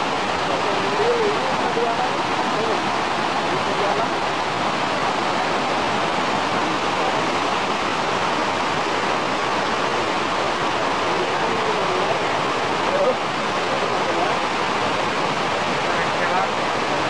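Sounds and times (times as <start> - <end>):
river rushing over rapids: 0.0 - 17.0.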